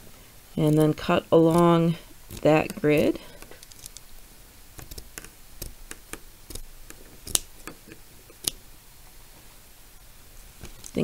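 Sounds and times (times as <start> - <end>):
scissors snipping plastic canvas: 0.7 - 4.0, 4.8 - 7.8.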